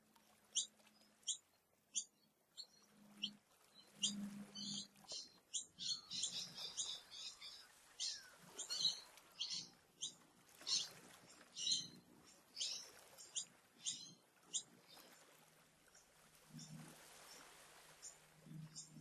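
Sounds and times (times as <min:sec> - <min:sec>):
small birds chirping: 0:00.5 - 0:15.1.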